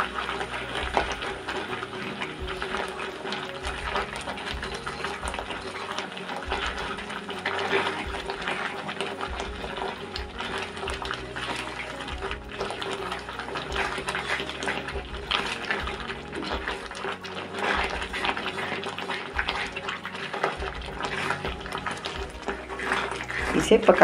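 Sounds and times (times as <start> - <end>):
milk sizzling and bubbling: 0.0 - 24.0
spatula stirring and scraping: 0.0 - 24.0.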